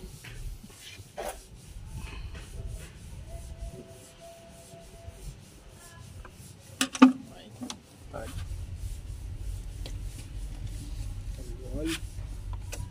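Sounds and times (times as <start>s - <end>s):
hand rubbing and handling: 0.0s - 12.9s.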